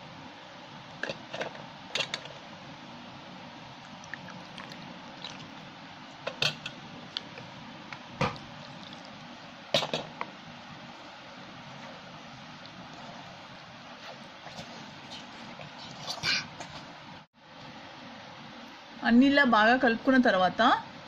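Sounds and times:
water pouring: 3.8 - 6.5, 8.2 - 9.3.

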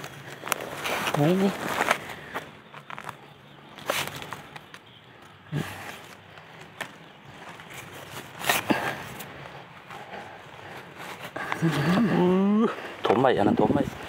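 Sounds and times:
handling knocks and clicks: 0.0 - 9.3.

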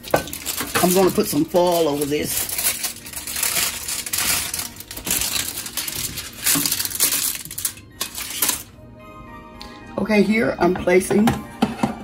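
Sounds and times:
aluminium foil crinkling: 0.0 - 8.7.

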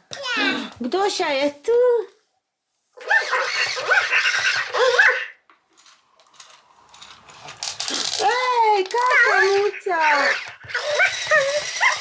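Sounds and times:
toy squeaky electronic animal cries: 3.0 - 5.3, 9.0 - 12.0.

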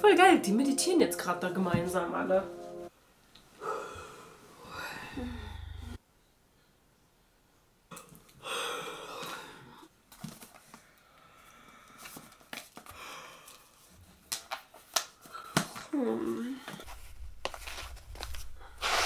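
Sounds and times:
woman exhaling breathily: 3.6 - 6.0
book pages rustling: 10.1 - 10.8, 12.0 - 12.9, 16.7 - 19.0.

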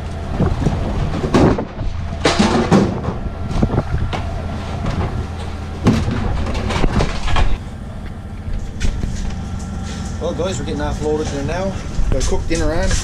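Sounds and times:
low machinery hum: 0.0 - 13.0
plastic crates clattering: 0.4 - 7.6.

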